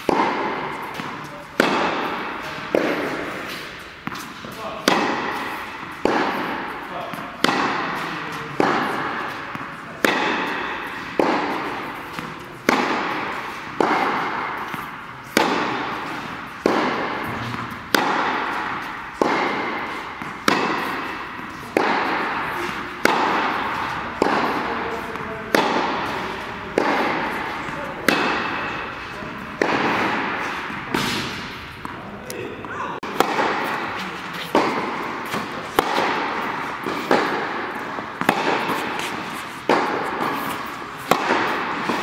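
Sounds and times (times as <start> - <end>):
tennis ball being hit: 0.0 - 42.0.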